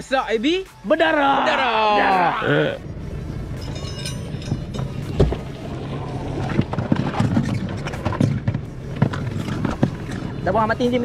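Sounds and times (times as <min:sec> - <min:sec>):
outboard motor running: 0:02.5 - 0:11.0
anchor chain knocks and rattles: 0:03.6 - 0:05.5.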